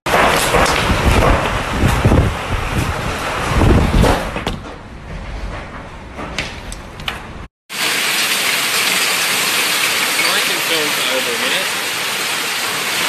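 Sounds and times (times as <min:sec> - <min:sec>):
heavy rain and hail pelting: 0:00.1 - 0:04.2, 0:07.7 - 0:13.0
wind buffeting microphone: 0:00.4 - 0:07.5
hailstones cracking: 0:07.7 - 0:13.0.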